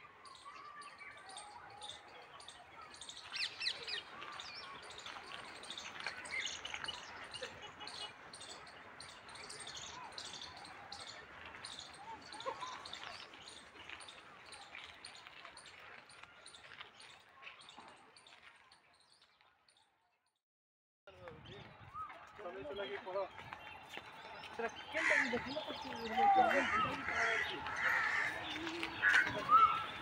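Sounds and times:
birds chirping and calling: 0.2 - 18.5, 21.4 - 30.0.

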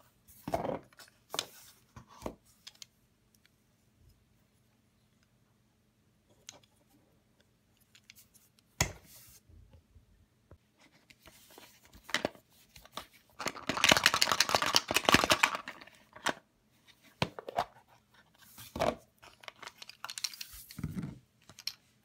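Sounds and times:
plastic crackling and crinkling: 13.3 - 16.3.

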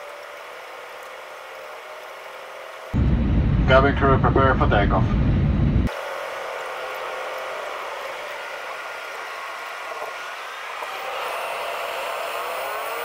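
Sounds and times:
rising whine: 2.8 - 13.0
sped-up airliner cabin noise: 2.9 - 6.3.

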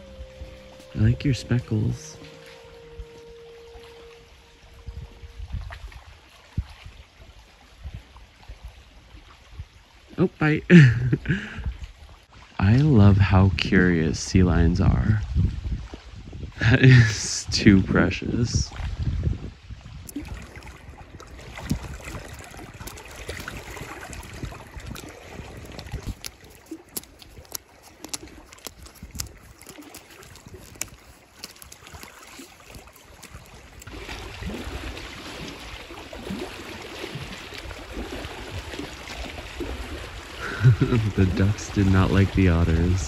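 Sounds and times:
water rushing: 0.0 - 15.1, 20.1 - 43.0
rustling and small clicks: 25.7 - 33.9.

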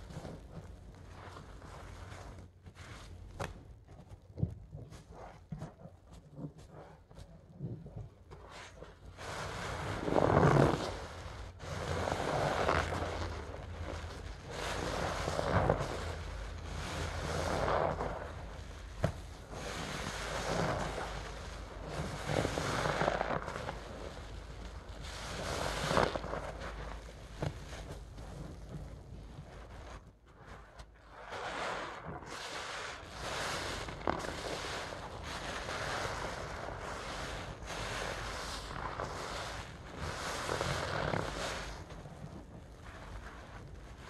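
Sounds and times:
sponge squelching in suds: 0.0 - 44.0.

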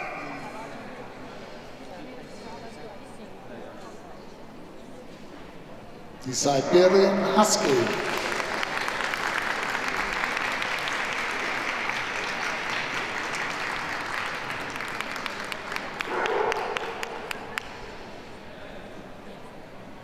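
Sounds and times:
audience applauding: 6.8 - 17.9.

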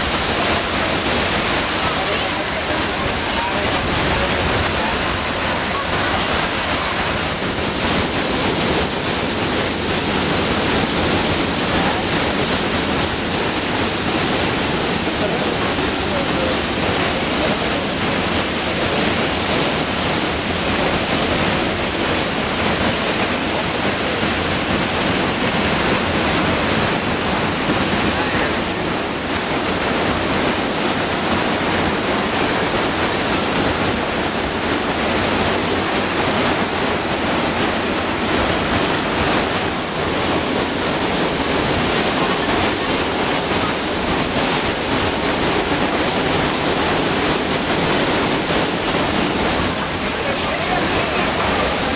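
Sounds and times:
waterfall roaring: 0.0 - 51.9.

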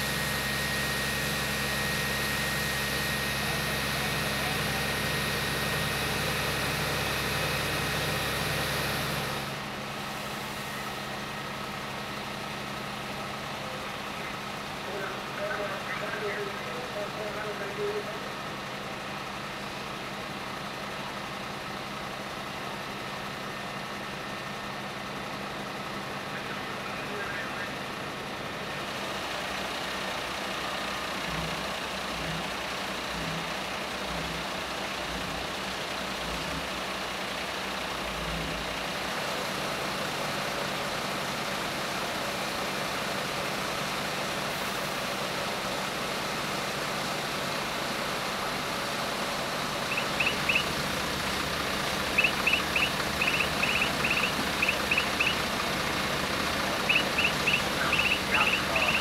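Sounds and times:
fire engines running: 0.0 - 59.0
short high chirps: 49.9 - 50.8, 52.1 - 55.4, 56.8 - 59.0.

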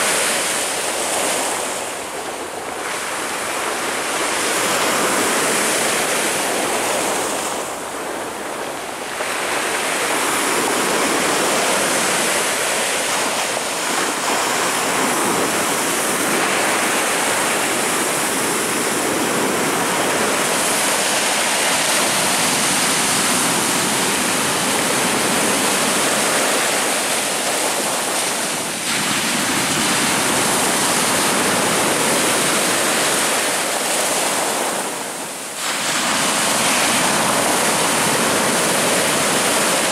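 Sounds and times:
heavy waves breaking on shore: 0.0 - 39.9.

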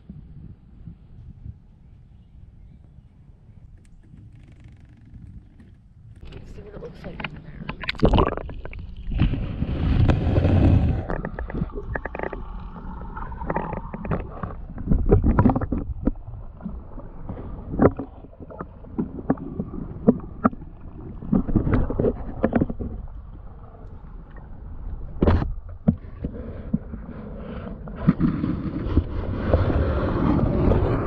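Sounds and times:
underwater rumbling and gurgling: 0.0 - 31.0
water rush: 6.2 - 25.3.

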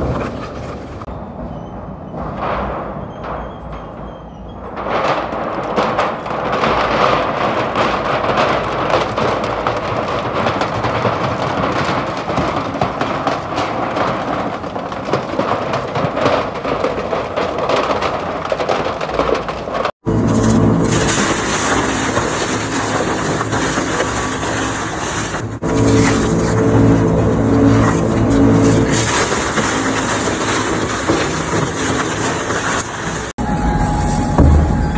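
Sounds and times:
shredder crunching sheet metal: 2.2 - 33.5.

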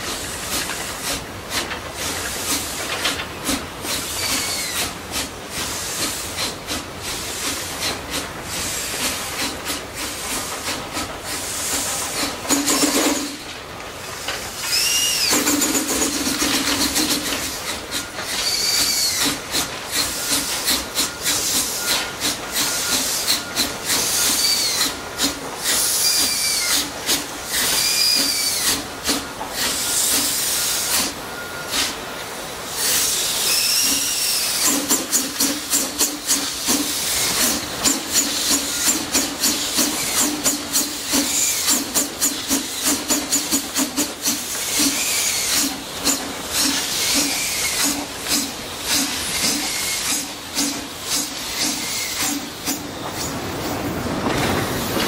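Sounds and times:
steam hissing from cylinders: 0.0 - 55.0
steam locomotive chuffing: 0.0 - 55.0
short squeals: 14.6 - 17.0, 18.0 - 19.4, 25.7 - 26.9, 27.5 - 28.8, 51.5 - 52.5.

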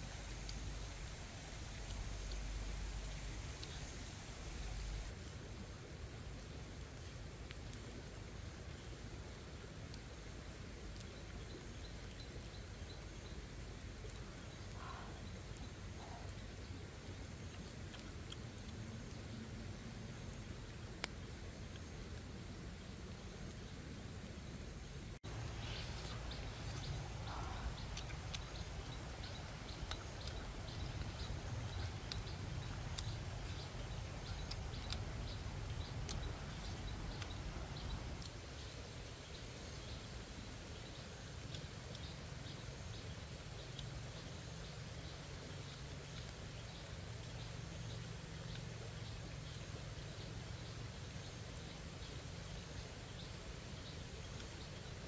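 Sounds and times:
low outdoor background hiss: 0.0 - 55.0
steady low rumble: 0.0 - 55.0
biting and chewing: 16.9 - 22.3, 25.2 - 38.8.

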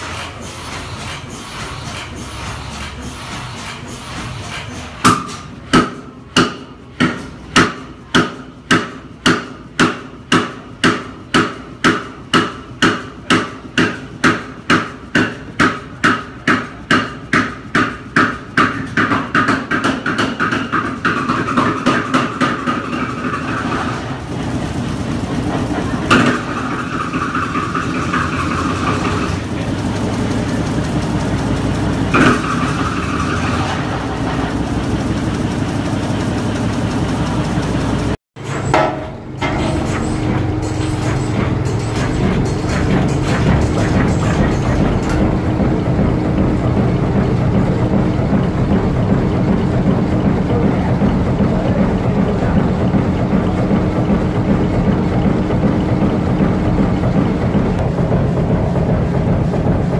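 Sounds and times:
stationary engine starting and running: 0.0 - 10.8, 19.2 - 59.9.

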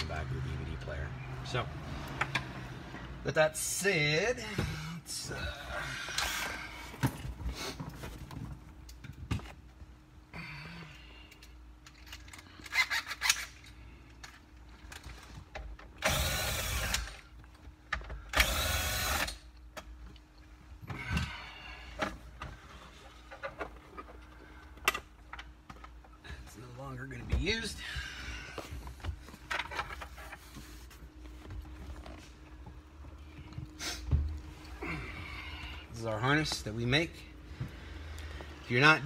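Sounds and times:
cordless drill running: 16.0 - 17.2, 18.4 - 19.4.

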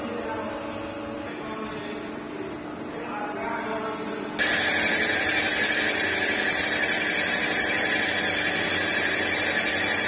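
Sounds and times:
lathe cutting high-pitched whine: 4.4 - 10.0.

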